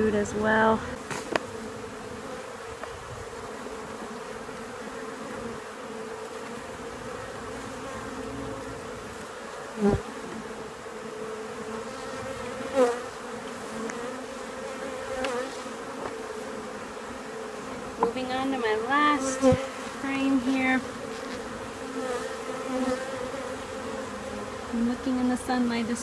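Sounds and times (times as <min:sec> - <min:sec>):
honey bees buzzing: 0:00.0 - 0:26.0
loud falling buzz: 0:06.2 - 0:10.8.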